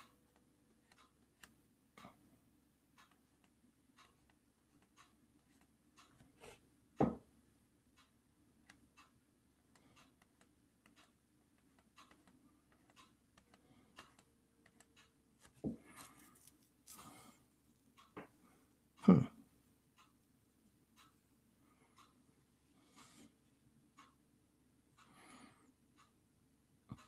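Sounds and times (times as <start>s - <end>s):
faint clicks and taps: 0.0s - 19.1s.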